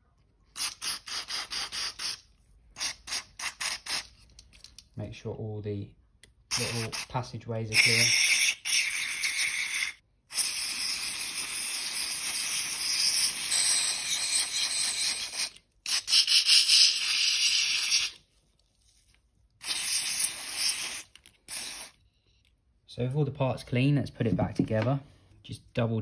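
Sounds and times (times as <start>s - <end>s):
aerosol spray hissing: 0.6s - 2.2s, 2.8s - 4.1s, 19.6s - 22.0s.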